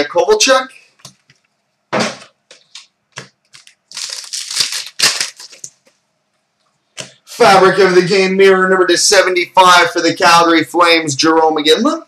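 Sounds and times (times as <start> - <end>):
wrapper crinkling: 2.7 - 5.9.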